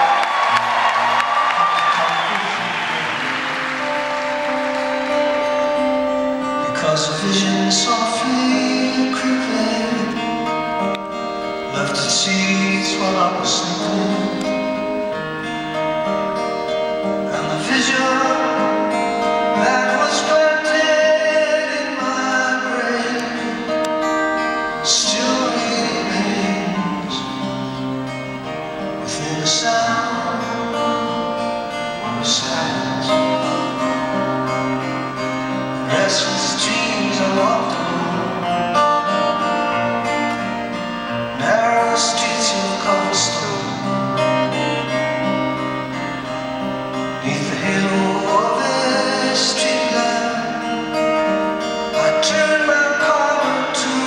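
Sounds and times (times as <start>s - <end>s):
strummed acoustic guitar: 0.0s - 54.0s
man singing: 6.4s - 10.9s, 11.5s - 15.2s, 17.2s - 27.6s, 28.9s - 34.0s, 34.7s - 45.1s, 47.1s - 54.0s.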